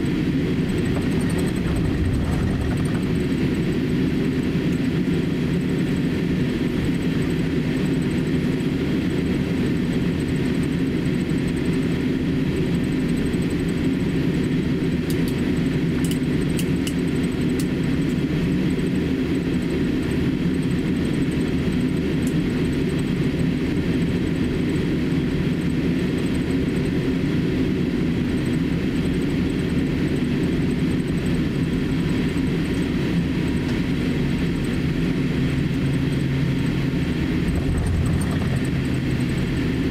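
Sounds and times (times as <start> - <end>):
airliner cabin rumble: 0.0 - 11.7, 30.2 - 39.9.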